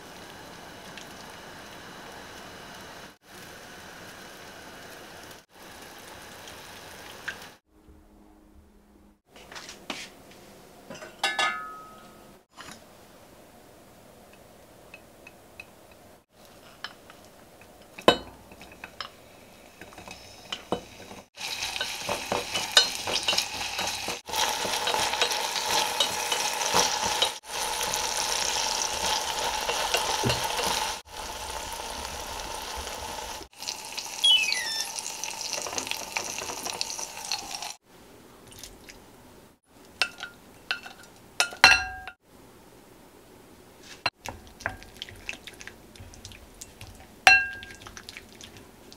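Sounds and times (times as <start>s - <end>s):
onion sizzling in hot oil: 0.0s - 7.6s, 16.4s - 37.8s.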